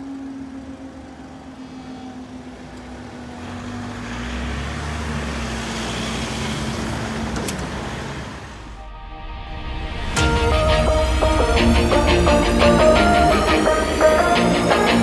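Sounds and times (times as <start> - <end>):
car engines rumbling: 0.0 - 8.8.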